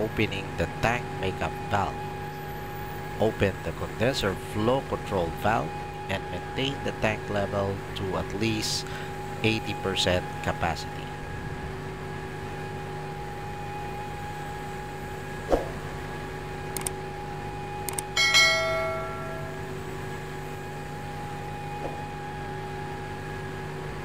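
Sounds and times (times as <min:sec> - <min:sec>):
machinery hum: 0:00.0 - 0:24.0
sharp clicks: 0:16.7 - 0:17.0, 0:17.8 - 0:18.2
bell-like chime: 0:18.2 - 0:19.8.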